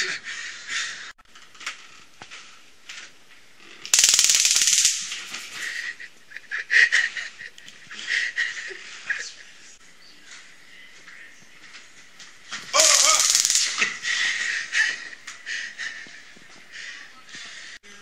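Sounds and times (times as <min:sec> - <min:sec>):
stun gun crackling: 0:03.8 - 0:05.6, 0:12.7 - 0:14.0
man laughing: 0:05.6 - 0:09.7, 0:12.8 - 0:16.1.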